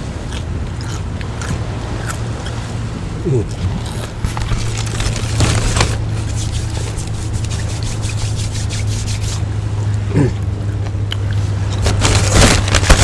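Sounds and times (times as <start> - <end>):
chewing crunchy onion rings: 0.0 - 2.6, 3.3 - 6.0
low engine drone: 0.0 - 13.0.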